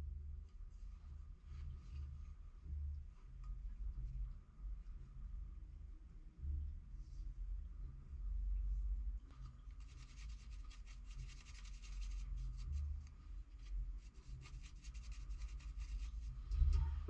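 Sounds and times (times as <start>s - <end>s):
bristle brush scrubbing metal: 14.0s - 16.3s.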